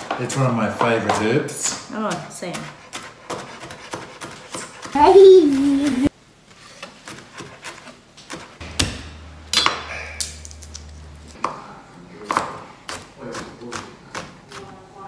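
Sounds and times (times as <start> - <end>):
knife chopping on plastic board: 2.0 - 5.1, 12.2 - 14.7.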